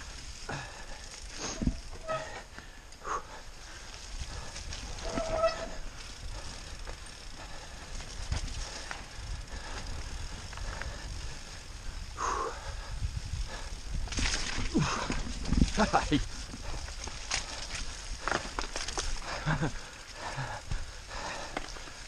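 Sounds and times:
bicycle tyre noise on mud: 0.0 - 22.0
wind rumble on microphone: 3.9 - 19.7
chain and frame rattle: 4.3 - 9.2
bike knocking over bumps: 14.0 - 19.2, 21.4 - 21.9.

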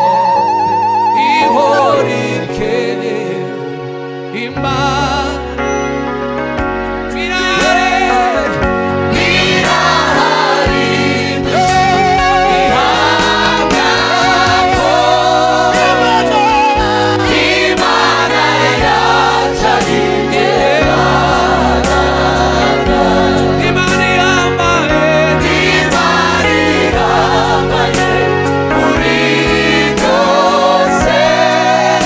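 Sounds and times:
group singing in harmony: 0.0 - 5.3, 7.1 - 32.0
instrumental backing with beat: 6.6 - 32.0.

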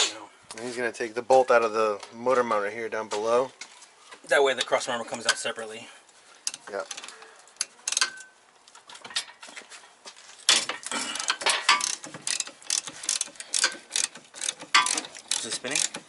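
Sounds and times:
ratchet wrench clicking: 7.6 - 8.3, 11.7 - 16.0.

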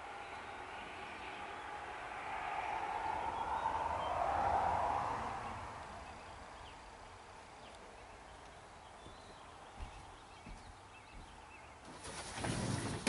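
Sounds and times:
distant bird chirps: 5.4 - 12.3
soft low thumps: 9.0 - 11.6.

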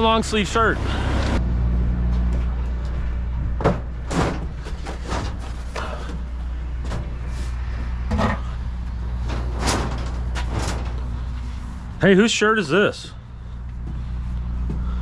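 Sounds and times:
engine idling hum: 0.0 - 15.0
knocks and clatters: 3.5 - 6.2, 9.2 - 11.1.

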